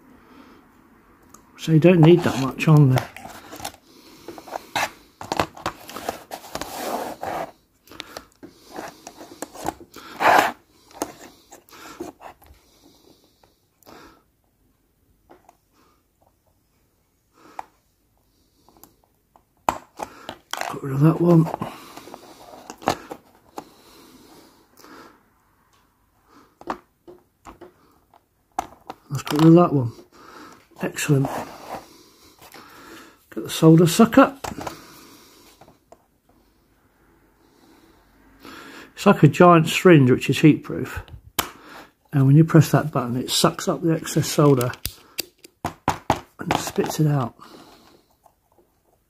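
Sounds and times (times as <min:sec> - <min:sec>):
handling clicks taps and rustles: 0:44.1 - 0:47.3.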